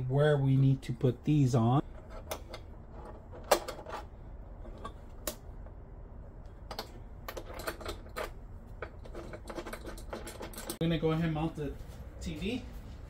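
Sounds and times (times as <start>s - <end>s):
metal wrench and bolts clicking: 6.7s - 10.8s.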